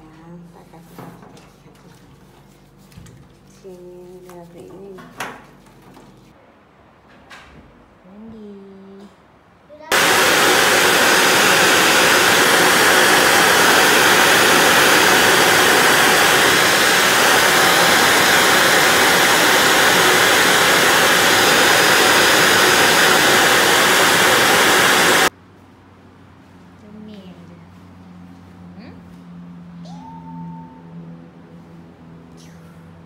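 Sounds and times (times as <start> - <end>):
blow dryer blowing: 9.9 - 25.3.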